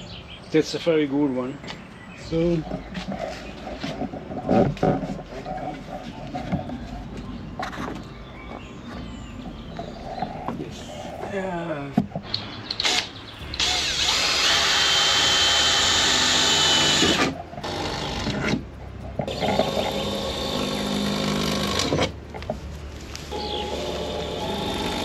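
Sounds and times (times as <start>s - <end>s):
power tool whining: 12.8s - 18.6s, 19.3s - 22.1s, 23.3s - 25.0s.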